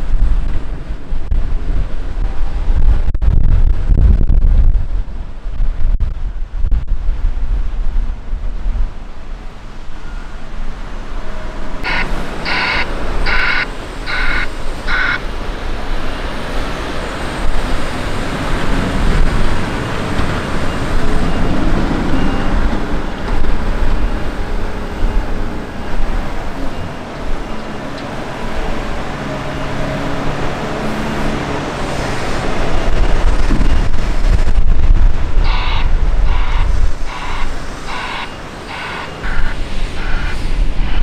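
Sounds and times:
diesel engine under load: 8.8s - 41.0s.

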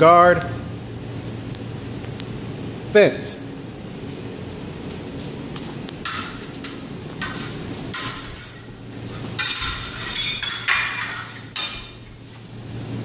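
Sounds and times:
fencing blades clinking: 6.0s - 12.0s.

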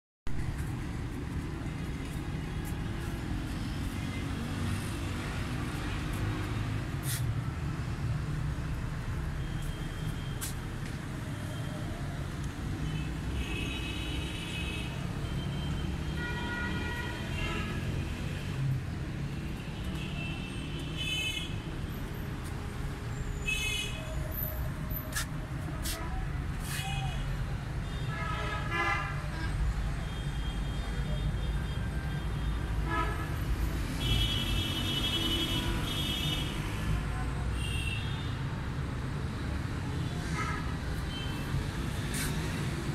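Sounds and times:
street traffic rumble: 0.3s - 42.9s.

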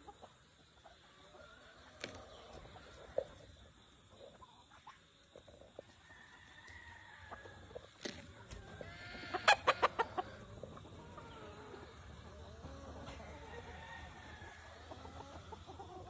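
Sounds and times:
fowl clucking faintly: 0.0s - 16.0s
rooster clucking loudly: 8.8s - 10.4s.

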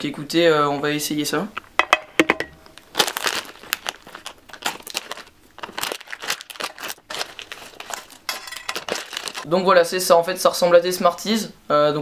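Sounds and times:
plastic packet crinkling: 2.6s - 9.5s.

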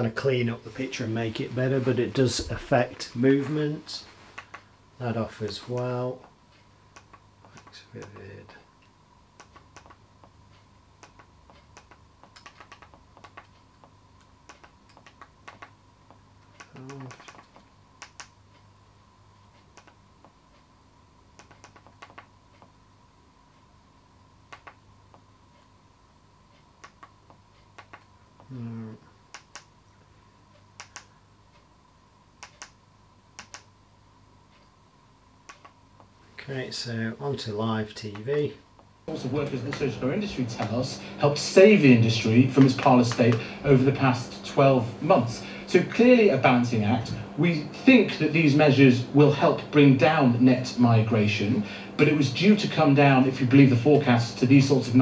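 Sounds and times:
faint steady hum: 0.0s - 55.0s
remote control clicks: 6.9s - 8.2s, 9.4s - 15.8s, 16.4s - 18.4s, 19.6s - 20.4s, 21.4s - 22.8s, 24.5s - 25.2s, 26.8s - 28.1s, 29.3s - 29.7s, 30.6s - 31.1s, 32.4s - 32.8s, 33.4s - 33.8s, 35.4s - 36.1s
remote control button clicks: 33.4s - 33.7s.

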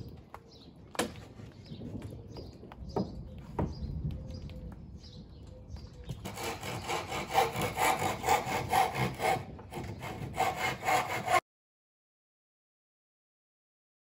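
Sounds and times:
hand saw cutting wood: 6.2s - 11.4s.

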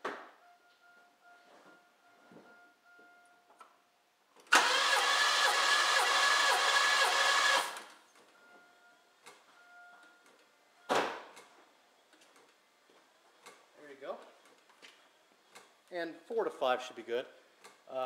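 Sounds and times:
starter motor cranking engine: 4.5s - 8.0s.

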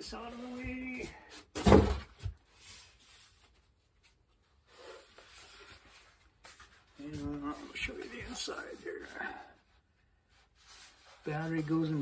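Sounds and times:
thump of foam piece set down: 1.5s - 2.4s.

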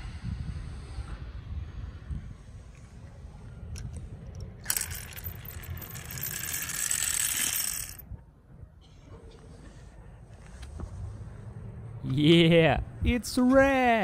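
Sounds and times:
small hard objects rattling: 4.6s - 8.0s.

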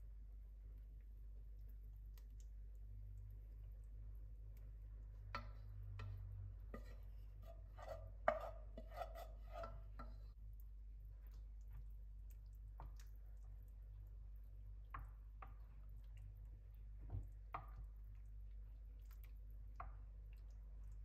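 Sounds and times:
wooden spoon scraping a saucepan: 5.2s - 10.4s.

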